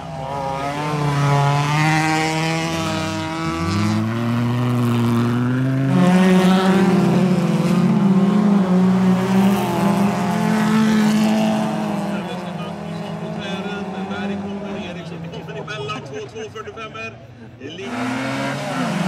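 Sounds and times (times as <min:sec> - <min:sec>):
car engines revving hard: 0:00.0 - 0:19.0.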